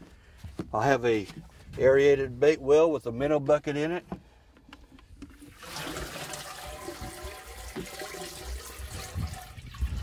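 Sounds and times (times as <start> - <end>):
water streaming and splashing: 5.2 - 10.0.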